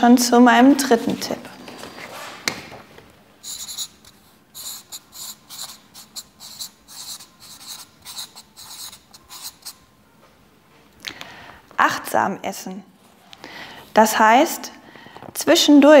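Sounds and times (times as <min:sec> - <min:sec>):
marker pen squeaking on paper: 0:03.4 - 0:09.9.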